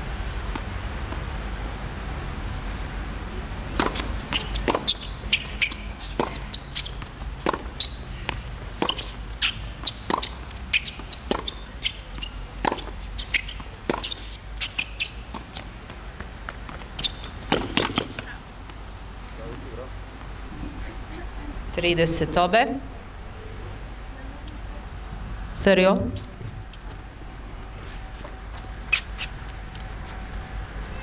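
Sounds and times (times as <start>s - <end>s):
tennis ball hits and bounces: 3.7s - 18.3s.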